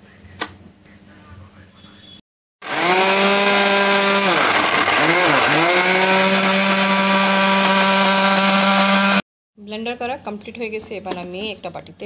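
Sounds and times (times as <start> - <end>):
blender motor whine: 2.6 - 9.2.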